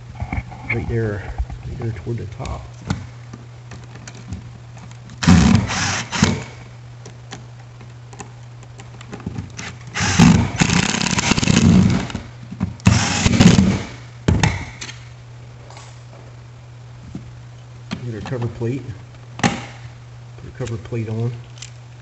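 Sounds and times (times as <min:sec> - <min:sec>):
cordless power driver running: 0:03.8 - 0:06.8, 0:09.5 - 0:14.0.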